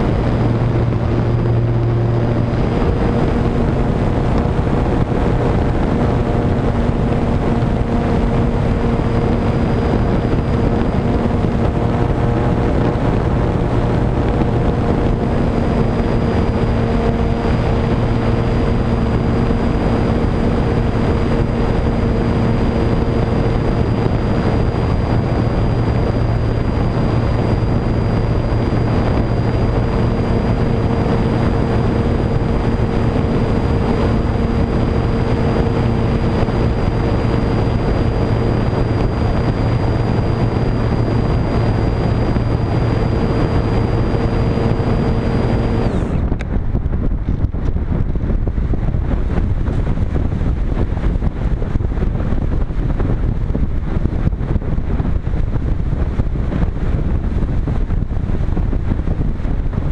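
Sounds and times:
electric motor propeller whine: 0.0 - 46.9
wind rushing past camera: 0.0 - 59.9.

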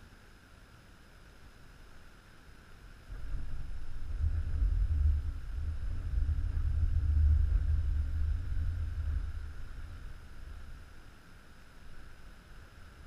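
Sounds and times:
wind buffeting microphone: 3.1 - 10.9.

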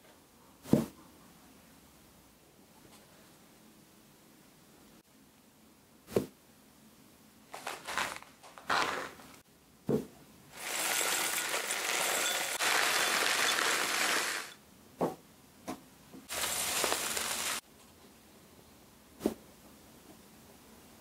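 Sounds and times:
foil bag crinkling: 7.5 - 9.4, 10.6 - 14.6, 16.3 - 17.6
loose tea pouring into glass jar: 10.6 - 14.6.

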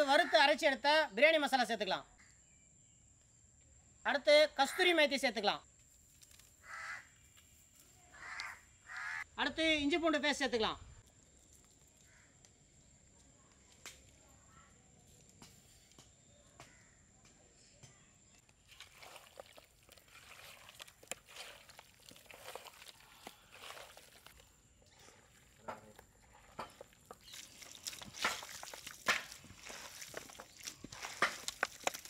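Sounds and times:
hands squishing raw chicken: 18.6 - 32.0.

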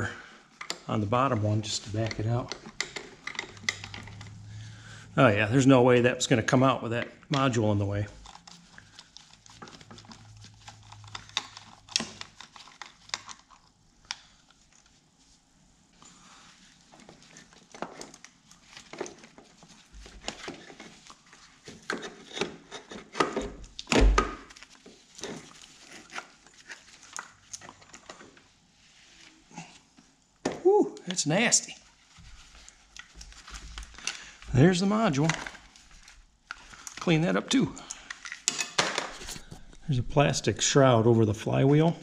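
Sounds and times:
metallic clicks knocks and scrapes: 1.8 - 4.4.

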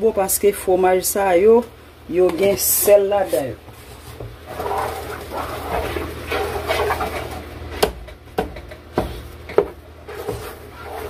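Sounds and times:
wooden spoon stirring: 2.2 - 7.8, 8.9 - 11.0
sauce bubbling: 3.6 - 7.8.

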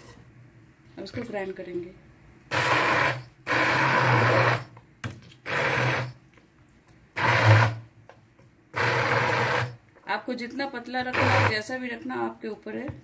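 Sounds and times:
immersion blender grinding: 2.5 - 4.7, 5.4 - 6.2, 7.2 - 7.9, 8.7 - 9.8, 11.0 - 11.7.

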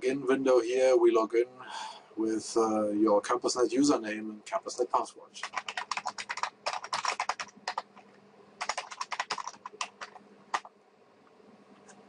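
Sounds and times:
typing on computer keyboard: 5.4 - 8.0, 8.6 - 10.7.

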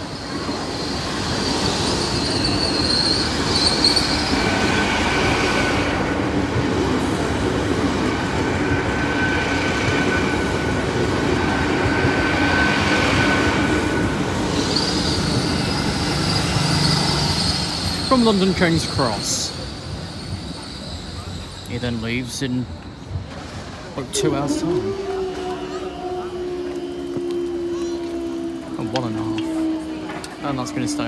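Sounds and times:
wheels squealing: 0.0 - 5.9, 14.4 - 30.9
train wheels rumbling on rail: 0.0 - 31.0.

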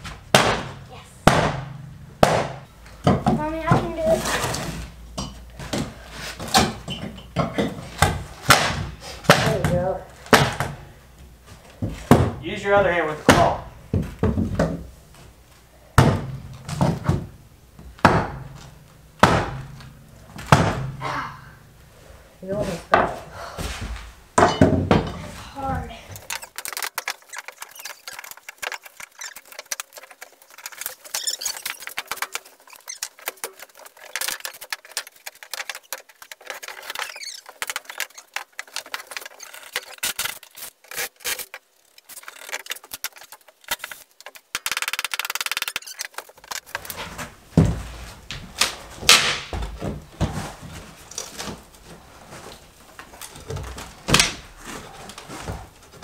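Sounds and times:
heavy thumps: 0.0 - 4.2, 15.9 - 21.2
boards cracking and nails squeaking: 2.3 - 5.0, 5.6 - 10.8, 24.5 - 47.7, 48.3 - 56.0.

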